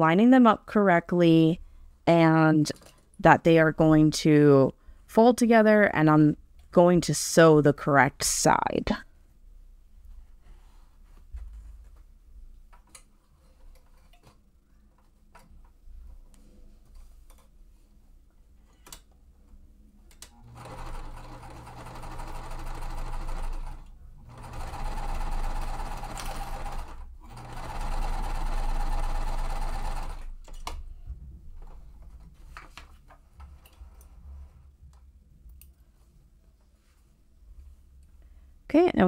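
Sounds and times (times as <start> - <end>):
sewing machine stitching: 20.3 - 30.4.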